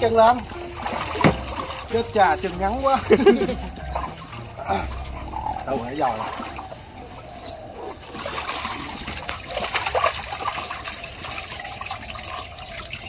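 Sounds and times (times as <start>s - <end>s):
running water trickling: 0.0s - 13.0s
water splashing in a tub: 0.0s - 13.0s.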